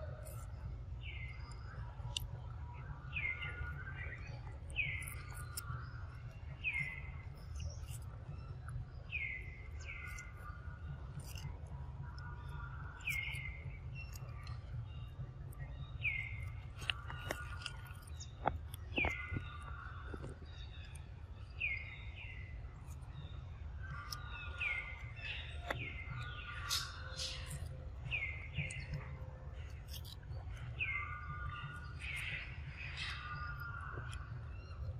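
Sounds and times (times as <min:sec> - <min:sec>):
birds calling: 0:00.0 - 0:34.9
low background rumble: 0:00.0 - 0:34.9
monkey chewing fruit: 0:11.1 - 0:11.6, 0:16.3 - 0:21.0, 0:28.5 - 0:30.3
high bird chirps: 0:12.2 - 0:34.9.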